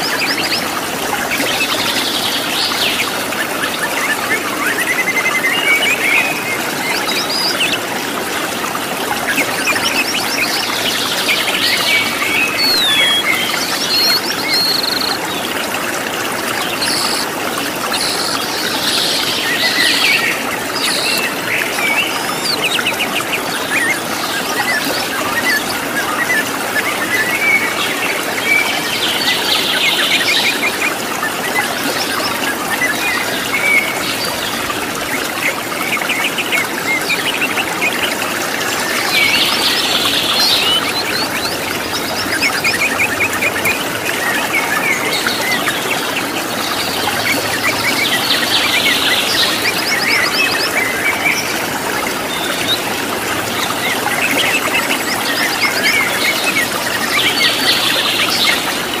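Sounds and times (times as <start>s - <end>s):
birds chirping and trilling: 9.3s - 15.6s, 35.5s - 59.0s.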